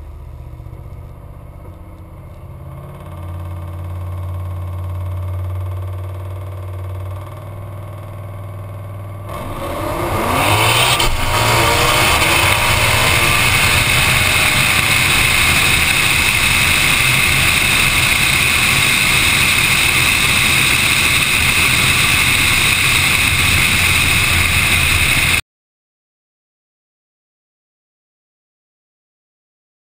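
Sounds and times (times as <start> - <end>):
car engine idling and revving: 0.0 - 25.4
wind noise: 9.9 - 25.4.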